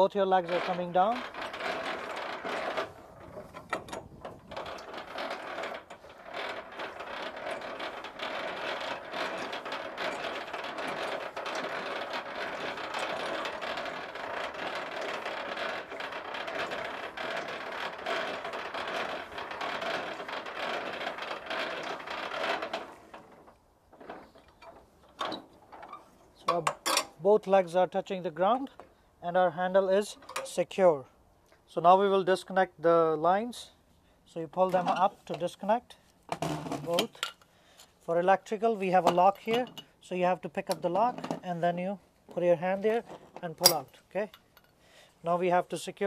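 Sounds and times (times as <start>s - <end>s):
crank gearbox clicking and rattling: 0.0s - 27.2s, 36.3s - 37.5s, 42.8s - 44.8s.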